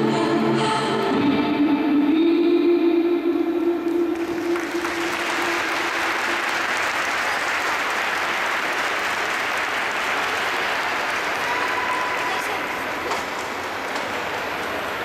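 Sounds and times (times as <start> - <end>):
audience applauding: 3.9 - 15.0.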